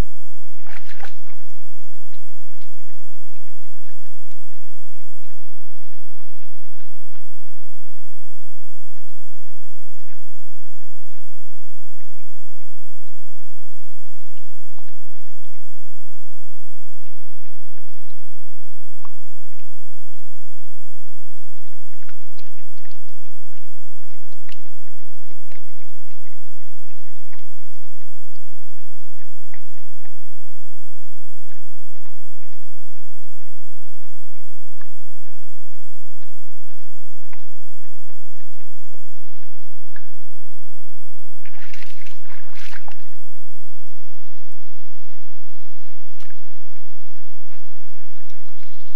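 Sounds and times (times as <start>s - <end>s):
electronic hiss and hum: 0.0s - 48.9s
animal slurping water: 0.4s - 12.8s, 13.4s - 15.9s, 21.1s - 30.4s, 31.0s - 40.2s, 41.4s - 48.9s.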